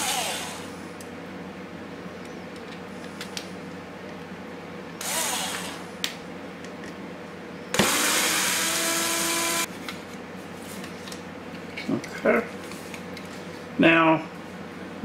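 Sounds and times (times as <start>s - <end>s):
electric screwdriver whirring: 0.0s - 0.7s, 5.0s - 5.8s, 7.8s - 9.7s.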